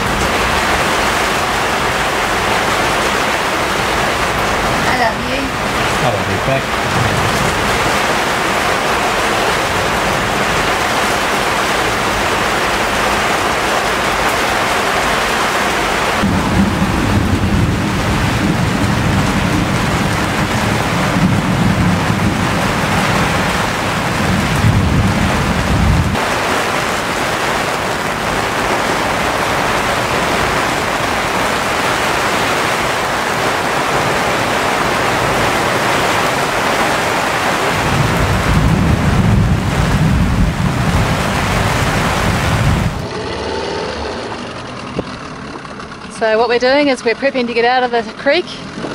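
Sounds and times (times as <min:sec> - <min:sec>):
heavy rain and wind rushing: 0:00.0 - 0:44.3
deep low rumble: 0:16.2 - 0:26.3.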